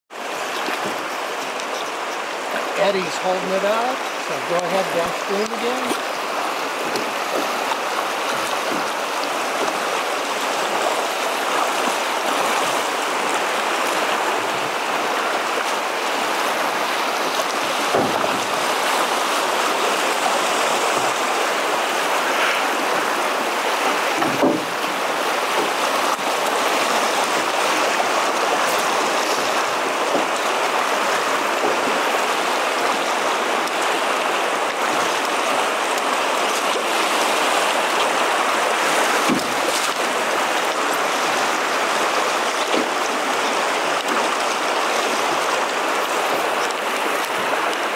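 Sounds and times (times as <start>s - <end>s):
river water rushing: 0.1s - 47.9s
short knocks: 24.2s - 24.7s.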